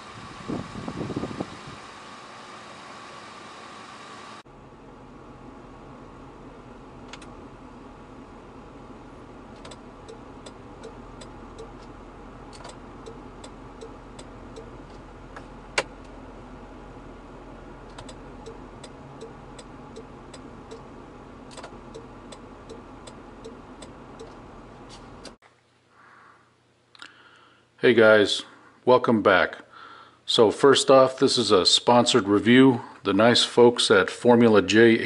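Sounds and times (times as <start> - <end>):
low steady hum: 0.0 - 35.0
turn-signal flasher clicking: 7.0 - 7.4, 9.5 - 16.2, 17.8 - 24.4.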